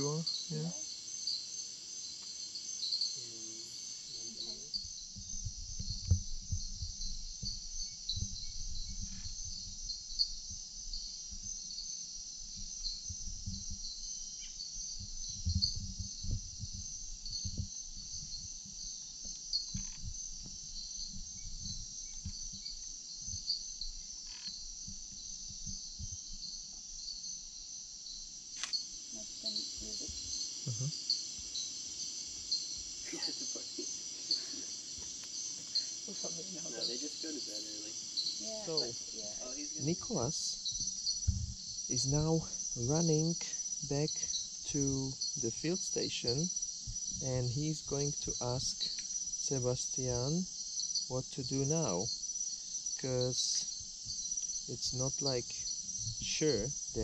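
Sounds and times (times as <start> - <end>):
insects shrilling: 0.0 - 5.1, 28.4 - 57.0.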